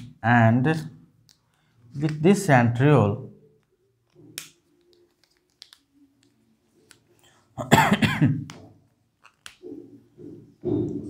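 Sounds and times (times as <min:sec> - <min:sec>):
man coughing loudly: 0:07.6 - 0:08.4.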